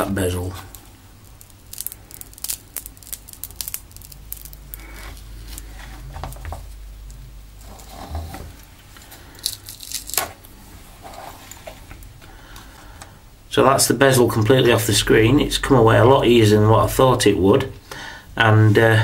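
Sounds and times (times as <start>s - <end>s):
plastic clicks and crackles: 0.7s - 7.2s.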